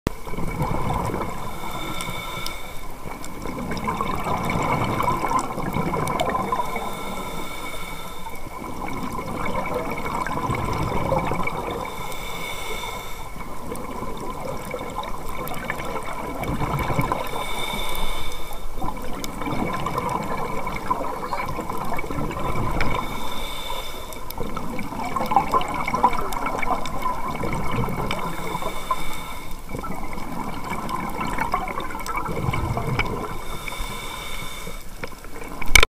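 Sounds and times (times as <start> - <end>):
exhaled bubbles rushing: 0.1 - 2.0, 2.9 - 7.4, 8.4 - 12.0, 13.2 - 17.6, 18.7 - 23.3, 24.2 - 29.0, 29.6 - 33.7
regulator inhale hiss: 1.2 - 3.2, 6.2 - 8.7, 11.4 - 13.8, 17.1 - 18.8, 22.8 - 24.6, 28.1 - 30.2, 33.2 - 35.2.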